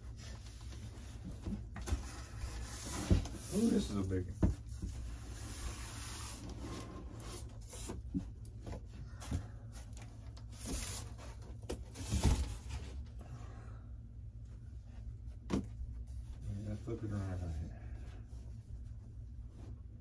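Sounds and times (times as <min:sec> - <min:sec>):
cardboard scraping and rubbing: 0:00.1 - 0:08.3.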